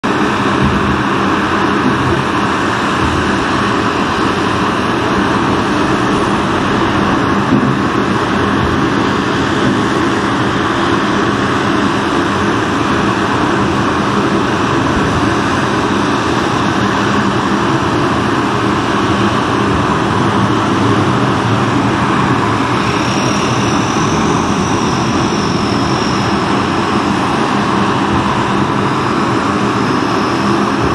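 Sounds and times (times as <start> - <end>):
high whine: 0.0 - 30.9
turboprop engines running: 0.0 - 30.9
engine starting and spooling up: 15.5 - 30.9.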